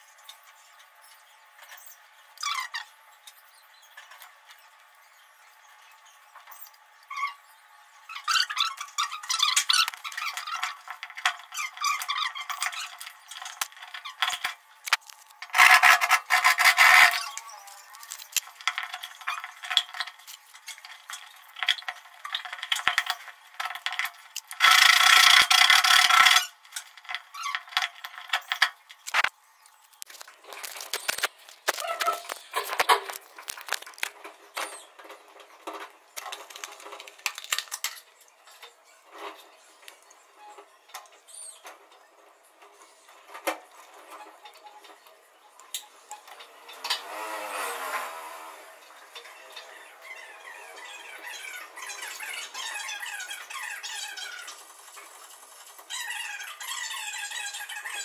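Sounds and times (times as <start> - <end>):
plastic rubbing and scraping: 8.1 - 41.9.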